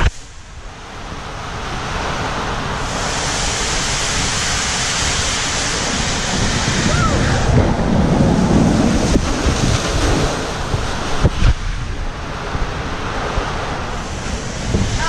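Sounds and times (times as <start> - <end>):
water rushing: 0.0 - 15.0
wind buffeting microphone: 0.0 - 15.0
low thumps: 6.0 - 13.6.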